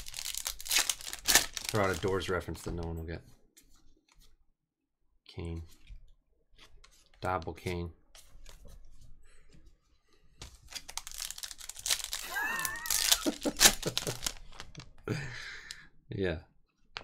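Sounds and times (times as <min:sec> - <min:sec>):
foil wrapper tearing and crinkling: 0:00.0 - 0:02.3, 0:10.7 - 0:14.8.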